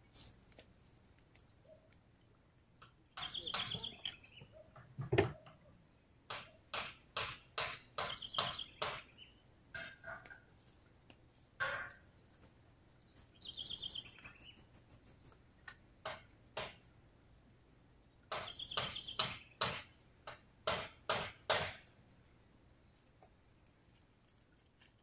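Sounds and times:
bird pulsing chirping call: 3.2 - 4.4, 13.1 - 15.3, 18.4 - 19.2
short harsh bird calls: 18.4 - 19.6.

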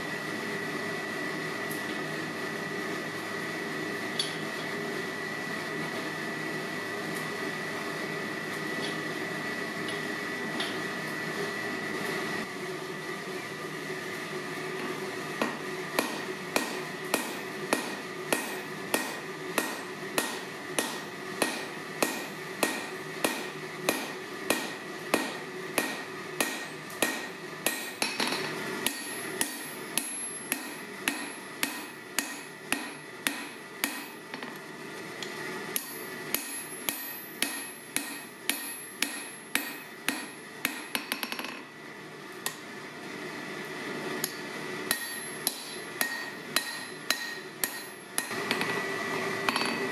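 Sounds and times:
steady background hum: 0.0 - 49.9
hammer striking steel on anvil: 15.4 - 34.6, 35.7 - 41.7, 44.2 - 48.8.

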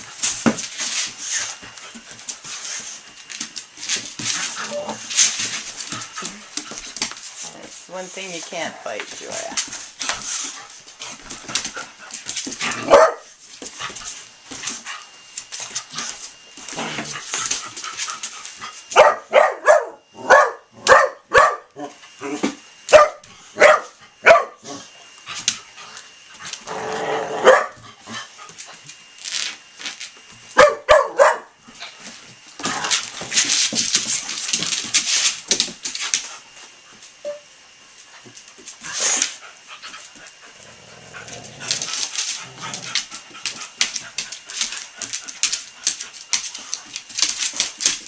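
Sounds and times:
dogs play barking: 9.6 - 29.4, 30.3 - 36.6, 38.1 - 48.0.

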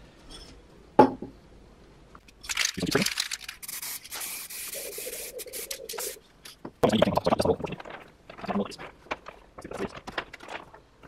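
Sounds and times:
aerosol spray can hissing: 3.6 - 6.2.

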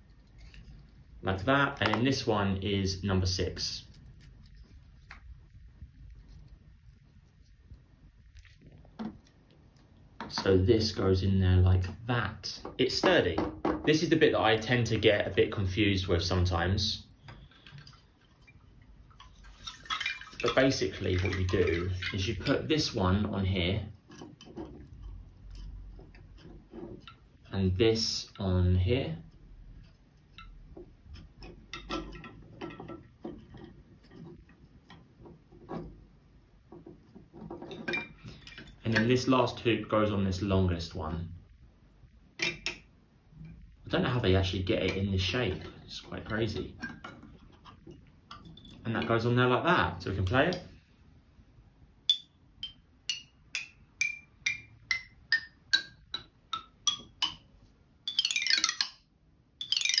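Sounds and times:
bamboo tubes tapping: 1.7 - 2.2, 10.1 - 10.6, 17.2 - 23.0, 23.9 - 27.5, 29.2 - 39.2, 42.4 - 42.9, 52.0 - 60.0
bamboo xylophone notes: 52.1 - 57.5, 58.1 - 59.0, 59.6 - 60.0.

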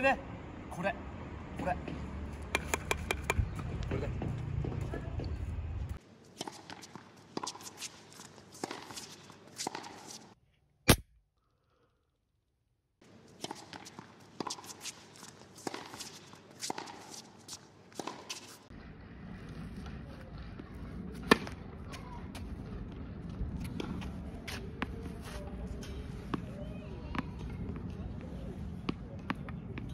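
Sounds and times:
background noise: 0.0 - 29.9.

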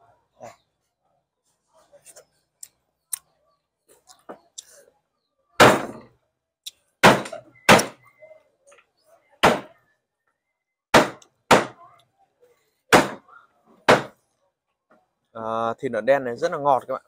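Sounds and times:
loud sharp thuds: 5.6 - 6.1, 7.0 - 8.0, 10.9 - 11.8, 13.9 - 14.2.

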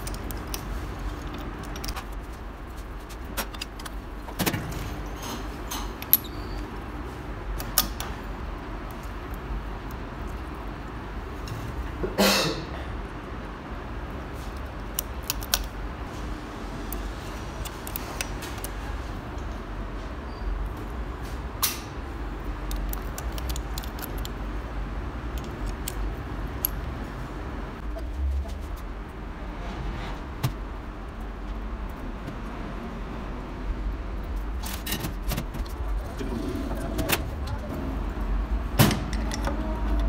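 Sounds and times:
metallic clicks of small steel parts: 0.0 - 2.1, 5.2 - 6.7, 14.6 - 15.8, 21.6 - 24.4, 25.3 - 26.9, 39.1 - 40.0
steady low rumble: 22.3 - 40.0.

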